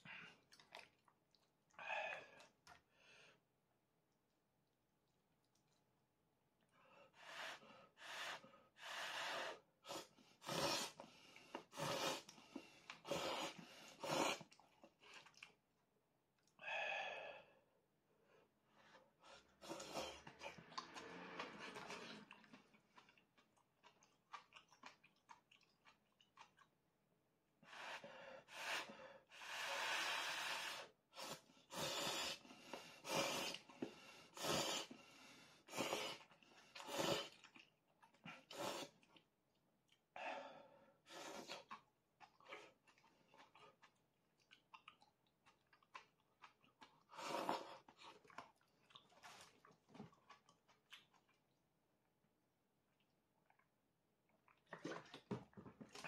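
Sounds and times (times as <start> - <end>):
chewing: 0.4 - 1.6, 14.3 - 15.6, 19.6 - 26.8, 36.2 - 40.1, 41.5 - 51.6, 52.9 - 56.0
person slurping noodles: 9.0 - 11.0, 11.6 - 15.4, 19.4 - 22.8, 33.0 - 33.7, 34.3 - 35.0, 35.7 - 37.6, 47.0 - 48.3.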